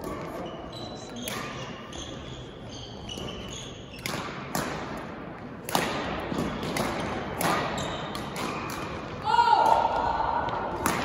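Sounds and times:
rackets hitting shuttlecock: 0:01.1 - 0:02.2, 0:03.0 - 0:11.0.

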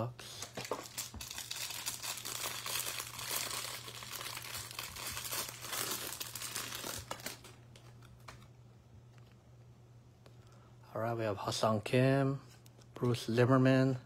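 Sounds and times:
plastic wrap crinkling and tearing: 0:00.3 - 0:08.4.

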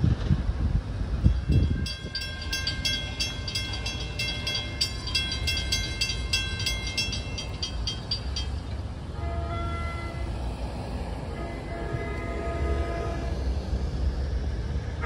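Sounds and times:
low rumble of train: 0:00.0 - 0:15.0
railroad bell ringing: 0:01.2 - 0:10.4.

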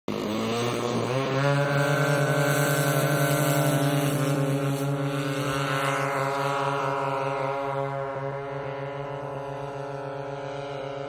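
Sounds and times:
model plane engines throttling up: 0:00.1 - 0:11.0.

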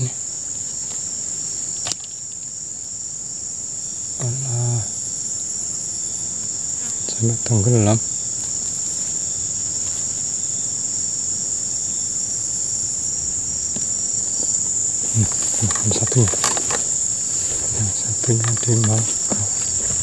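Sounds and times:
high-pitched insect drone: 0:00.0 - 0:20.0.

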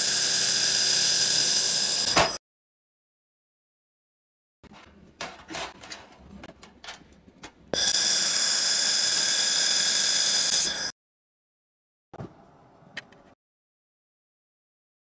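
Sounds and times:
laser welding hiss and whine: 0:00.0 - 0:02.4, 0:07.8 - 0:10.9
metal being handled: 0:04.7 - 0:07.7.

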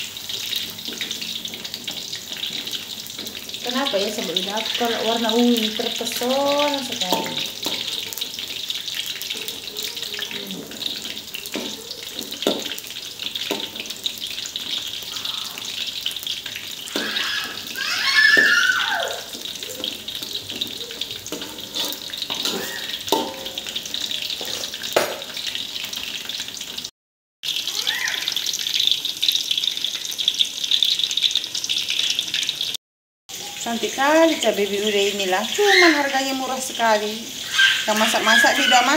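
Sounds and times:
food deep-frying in oil: 0:00.0 - 0:38.9
metal spatula scraping wok: 0:00.1 - 0:09.2, 0:10.3 - 0:15.0, 0:19.2 - 0:25.5.

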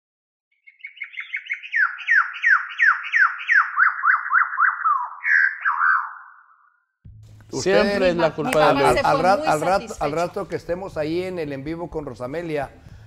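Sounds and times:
sliding whistle-like notes: 0:01.6 - 0:06.8.

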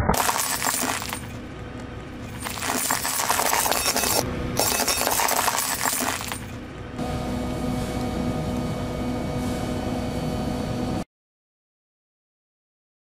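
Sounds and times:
steady hum with held tones: 0:00.0 - 0:11.0
glass crunching under a tyre: 0:00.1 - 0:01.5, 0:02.2 - 0:06.6.

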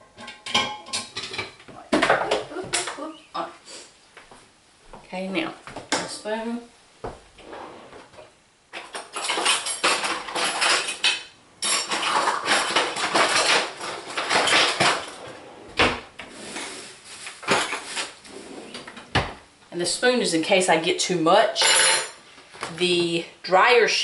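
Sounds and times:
metal cutlery clattering in drawer: 0:08.7 - 0:15.4, 0:17.4 - 0:18.2, 0:21.6 - 0:22.2.

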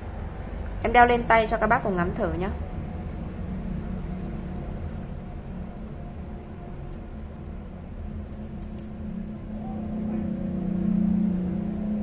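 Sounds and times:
low background hum: 0:00.0 - 0:12.0
wristwatch strap clicks and rustles: 0:06.9 - 0:09.0.

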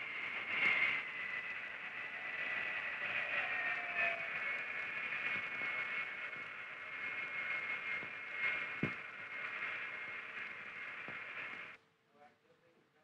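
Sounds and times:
jet engine whine: 0:00.0 - 0:11.8.

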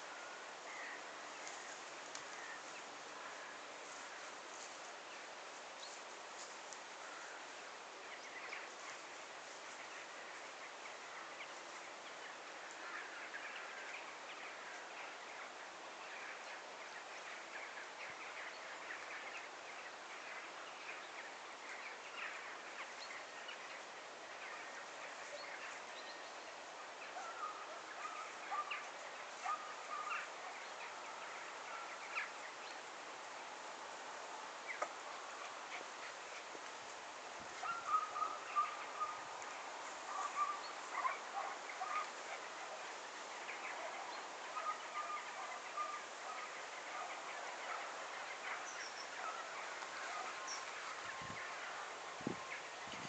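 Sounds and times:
bird calls and chirps: 0:00.0 - 0:36.8, 0:37.4 - 0:53.0
steady background hiss: 0:00.0 - 0:53.0.

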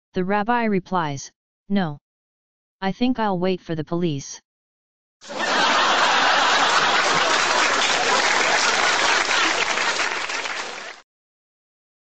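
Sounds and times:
audience applause: 0:05.2 - 0:11.0.

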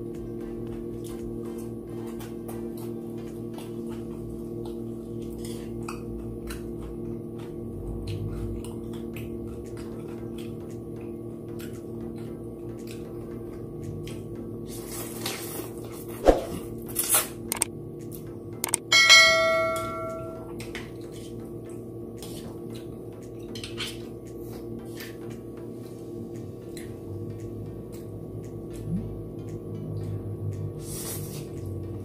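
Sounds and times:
soft background music: 0:00.0 - 0:32.0
slurping and chewing noodles: 0:00.2 - 0:18.3, 0:20.6 - 0:32.0
sharp click: 0:17.5 - 0:17.7, 0:18.6 - 0:18.9
bell-like ding: 0:18.8 - 0:20.5.

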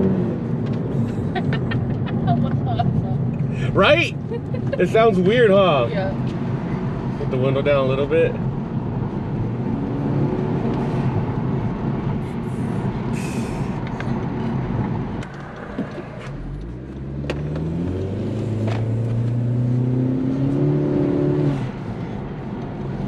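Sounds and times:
car engine and intake: 0:12.1 - 0:14.6.

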